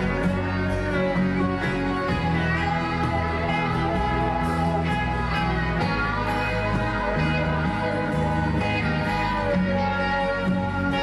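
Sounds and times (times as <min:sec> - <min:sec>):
bass line: 0:00.0 - 0:11.0
guitar background music: 0:00.0 - 0:11.0.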